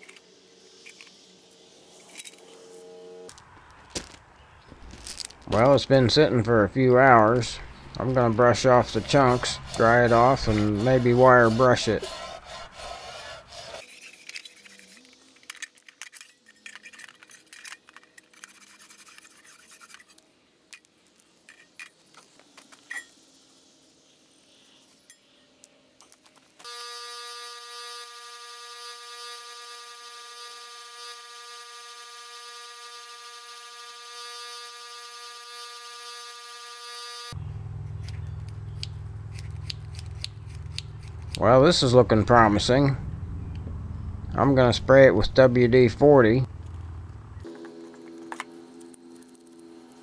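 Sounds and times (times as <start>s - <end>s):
wire wheel motor whine: 0.0s - 3.4s, 26.6s - 41.4s, 46.6s - 50.0s
brush scrubbing metal pan: 8.6s - 15.1s.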